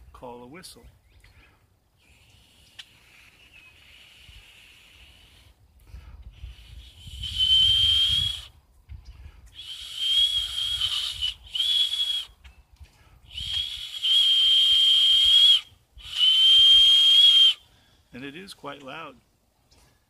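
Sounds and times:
hand whistle blasts: 0:06.6 - 0:08.5, 0:09.6 - 0:12.4, 0:13.3 - 0:17.6.

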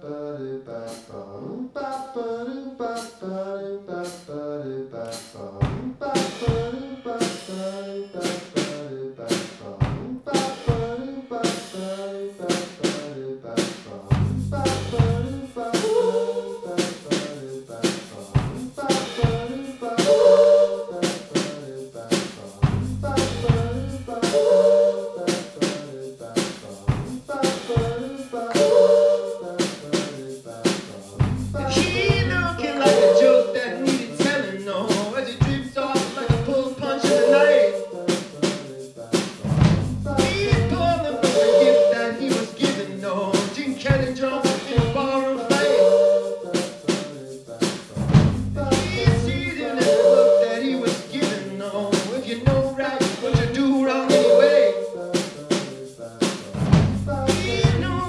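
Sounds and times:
male vocals: 0:00.0 - 0:58.0
drum kit: 0:05.1 - 0:58.0
live band playing: 0:05.2 - 0:13.0, 0:13.6 - 0:58.0
deep bass note: 0:48.2 - 0:49.4.

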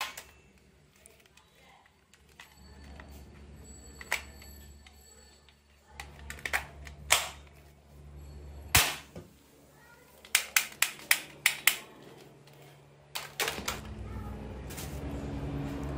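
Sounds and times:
plastic toy gun clicks and knocks: 0:10.2 - 0:11.9.

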